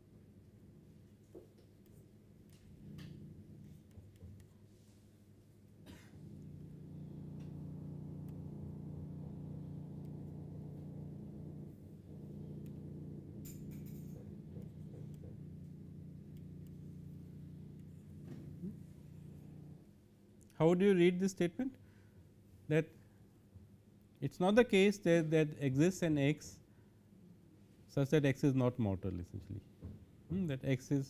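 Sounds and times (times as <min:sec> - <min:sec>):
steady low hum: 0:01.8 - 0:20.4.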